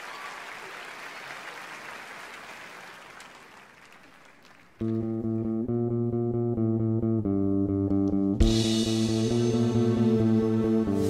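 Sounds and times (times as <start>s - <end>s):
applause: 0.0s - 4.9s
electric guitar and bass chords: 4.8s - 11.0s.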